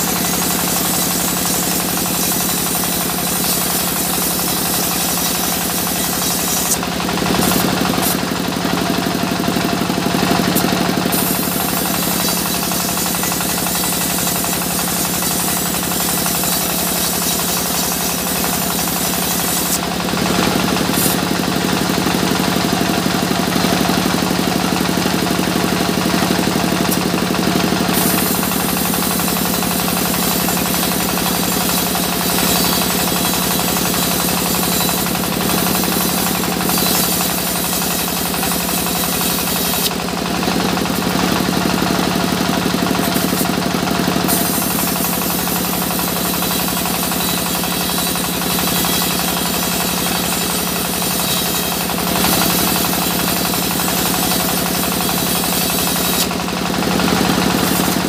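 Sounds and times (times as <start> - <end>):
saw blade hissing in wood: 0.0 - 8.4, 10.4 - 21.4, 27.8 - 40.0, 44.2 - 56.4, 57.4 - 58.0
sawmill saw humming: 0.0 - 58.0.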